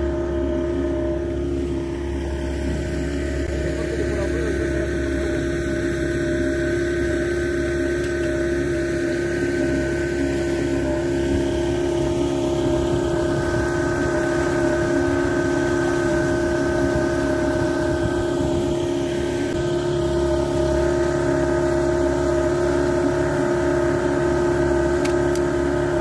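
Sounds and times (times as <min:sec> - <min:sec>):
boat motor droning: 0:00.0 - 0:26.0.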